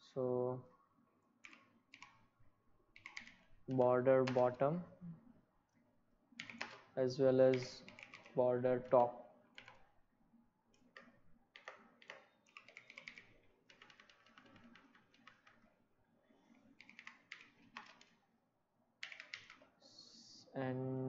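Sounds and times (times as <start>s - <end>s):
typing on a computer keyboard: 1.4s - 2.2s, 3.0s - 4.6s, 6.4s - 6.9s, 7.5s - 8.9s, 9.5s - 9.9s, 10.7s - 15.8s, 16.8s - 18.2s, 19.0s - 19.7s.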